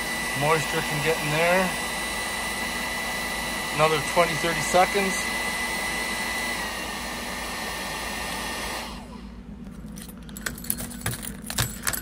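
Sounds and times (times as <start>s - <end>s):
heat gun blowing air: 0.0s - 9.4s
keys jangling: 9.7s - 12.0s.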